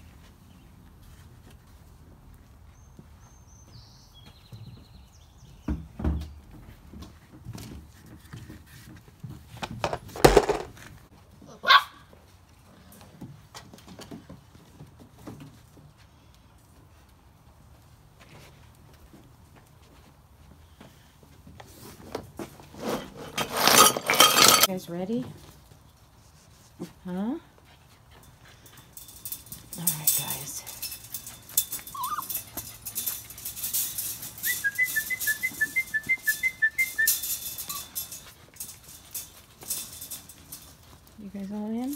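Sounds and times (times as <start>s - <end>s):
puppy yelping: 11.5s - 12.0s, 31.8s - 32.6s
puppy barking: 11.6s - 12.0s
puppy claws clicking on concrete: 28.7s - 41.0s
puppy squeak: 31.8s - 32.5s, 34.5s - 37.9s.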